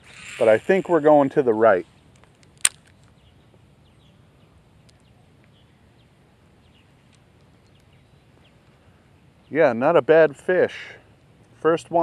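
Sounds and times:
sharp click: 2.2 - 3.2.

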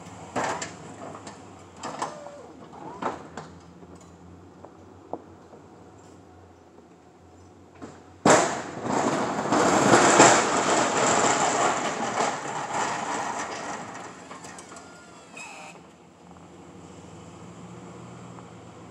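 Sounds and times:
snowplow blade scraping pavement: 8.3 - 18.9.

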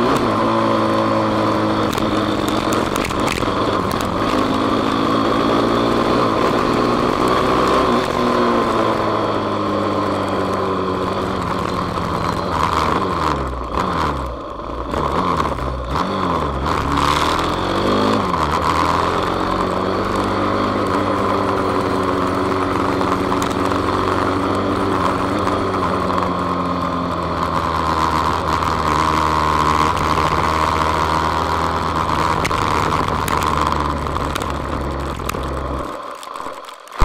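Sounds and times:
motorcycle engine running under load: 0.0 - 37.0.

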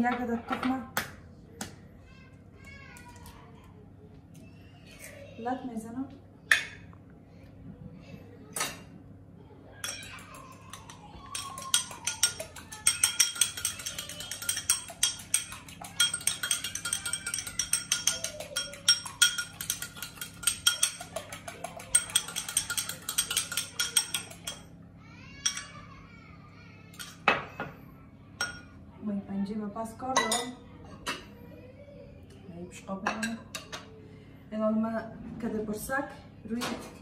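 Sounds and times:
fork whisking egg in glass bowl: 9.8 - 24.7.

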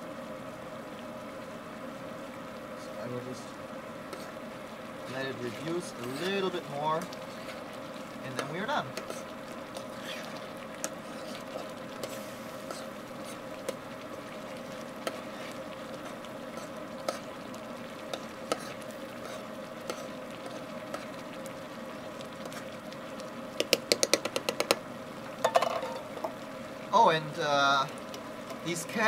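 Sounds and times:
chili simmering and bubbling: 0.0 - 29.0
steady hum: 0.0 - 29.0
spoon scraping a pan: 4.1 - 4.4, 5.5 - 7.7, 8.3 - 13.4, 18.1 - 21.1.

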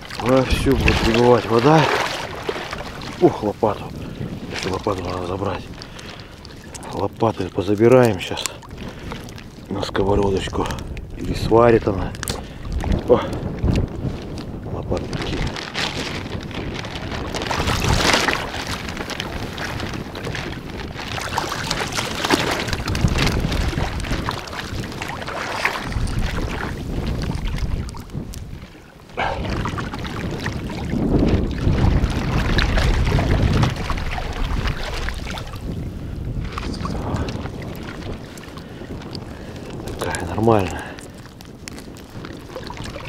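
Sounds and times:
seawater sloshing around wader: 0.0 - 43.0
wind buffeting microphone: 0.0 - 43.0.

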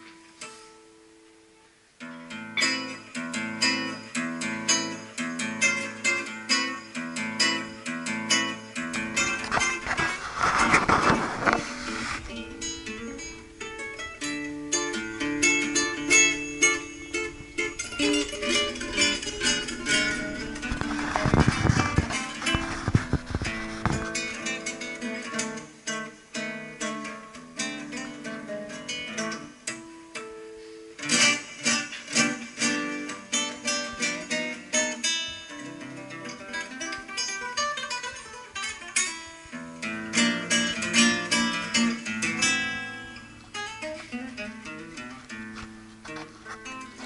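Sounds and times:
classical guitar playing: 0.0 - 47.0.

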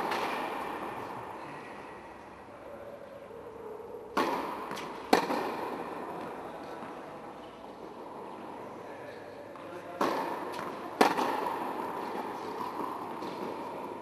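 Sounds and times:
tennis ball cracks echoing: 0.0 - 1.4, 4.1 - 8.2, 9.5 - 14.0.

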